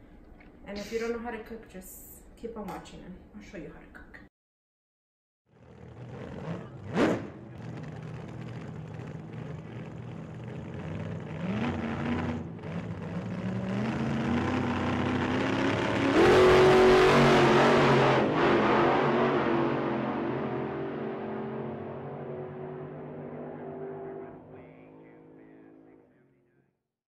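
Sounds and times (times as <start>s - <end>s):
road noise: 5.5s - 26.0s
car engine accelerating: 5.5s - 26.2s.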